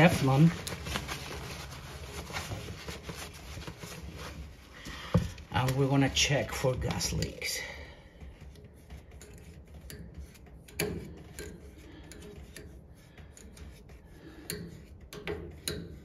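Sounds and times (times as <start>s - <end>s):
wire dauber tapping metal fitting: 8.2s - 16.0s.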